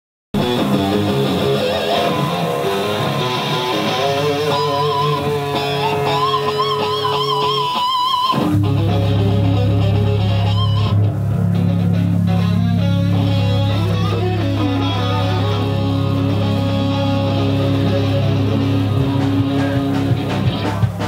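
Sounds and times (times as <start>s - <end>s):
rock band playing: 0.3s - 21.0s
loud low bass and guitar note: 0.4s - 7.8s, 8.4s - 21.0s
electric guitar notes with vibrato: 0.4s - 21.0s.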